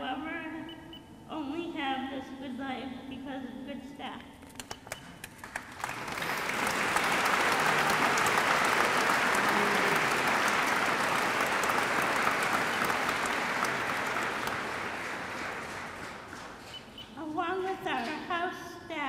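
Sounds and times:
audience applauding: 5.3s - 16.8s.

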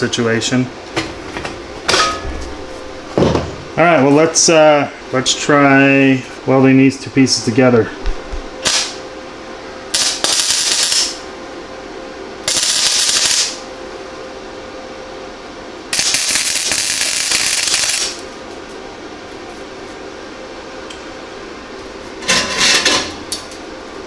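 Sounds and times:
welder humming faintly: 0.0s - 24.0s
welding arc crackling: 8.6s - 9.0s, 9.9s - 11.2s, 12.4s - 13.6s, 15.9s - 18.4s.

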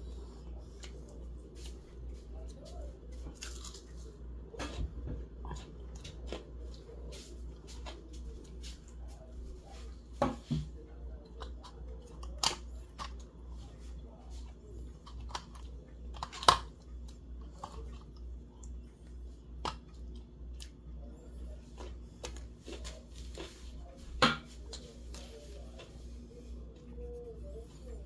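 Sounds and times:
steady low hum: 0.0s - 28.0s
chewing crackles and clicks: 3.1s - 4.2s, 11.2s - 23.6s.

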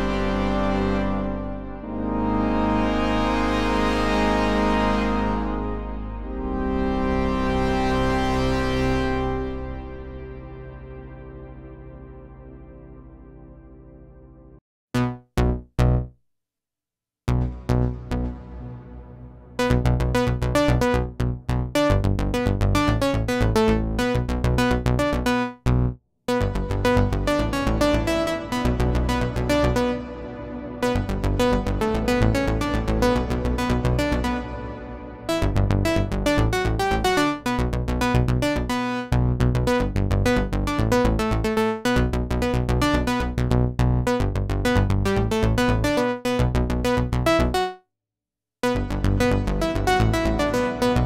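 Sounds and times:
synthesizer short notes run: 0.0s - 13.8s
synthesizer plucky notes: 0.0s - 16.1s, 17.3s - 25.5s, 26.3s - 43.4s, 44.0s - 47.8s, 48.6s - 51.0s.

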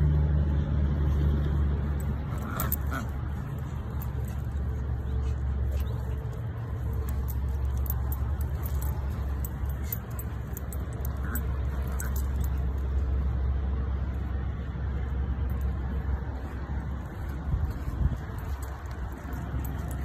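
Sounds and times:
dog tags jingling: 1.8s - 13.3s, 17.2s - 20.0s.

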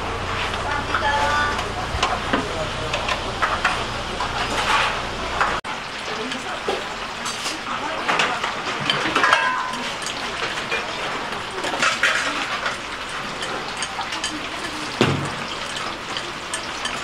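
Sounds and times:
hiss of cooking: 0.0s - 17.0s
dishes and utensils clinking: 0.8s - 17.0s.

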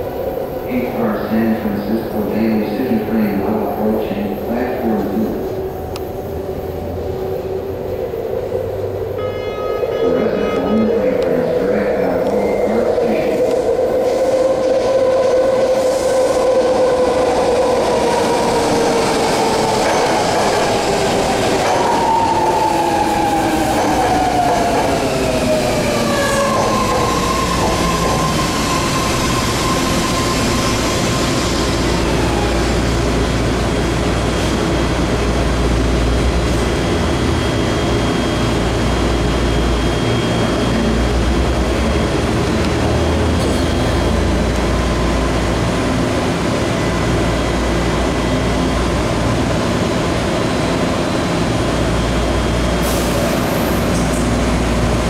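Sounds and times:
low train rumble: 0.0s - 55.0s
train braking whine: 9.1s - 33.1s.

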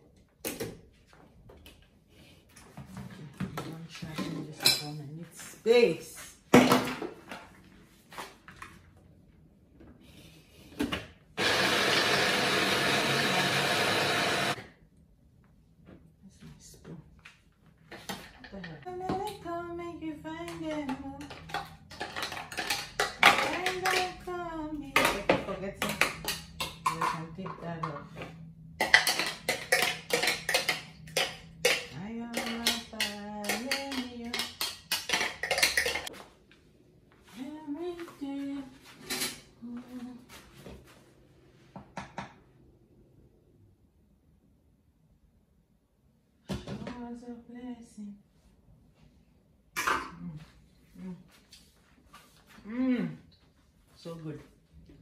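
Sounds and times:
electric blender running: 11.4s - 14.6s
utensils and dishes clinking: 28.8s - 36.1s.

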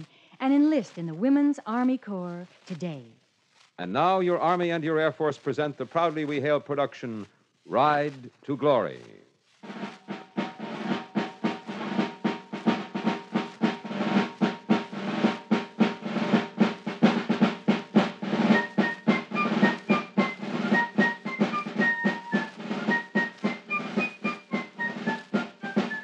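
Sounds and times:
high melody of short notes: 9.6s - 26.0s
snare drums beating: 9.6s - 26.0s.

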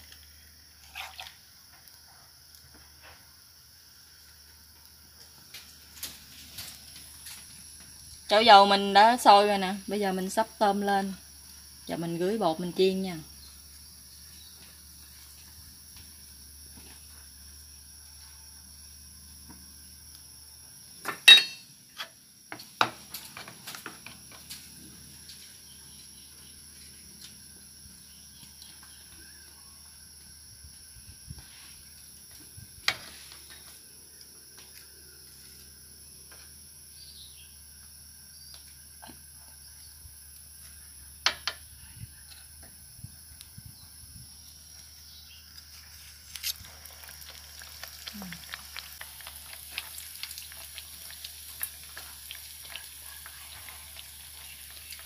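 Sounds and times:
faint steady hiss: 0.0s - 55.0s.

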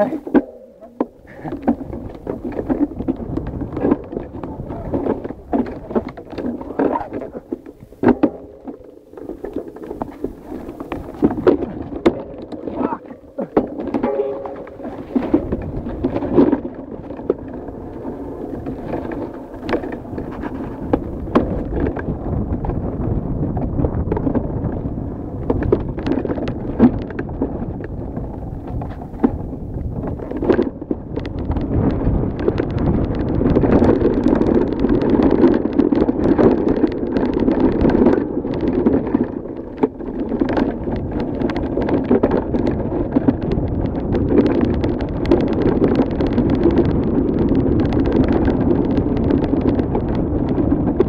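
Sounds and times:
bike frame knocking over bumps: 0.0s - 24.8s
mountain bike rattling on dirt trail: 0.0s - 51.0s
wind on microphone: 0.0s - 51.0s.

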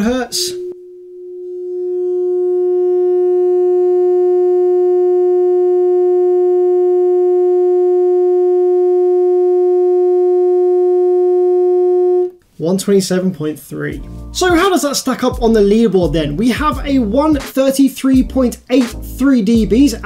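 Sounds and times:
steady test tone: 0.0s - 12.4s.

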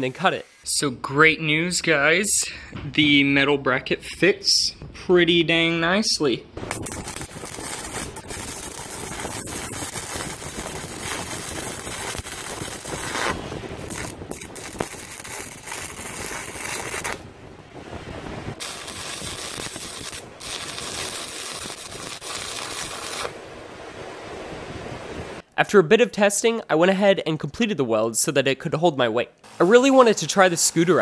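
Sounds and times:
arc welding noise: 0.0s - 0.7s, 6.6s - 17.3s, 18.6s - 23.4s, 29.4s - 31.0s.

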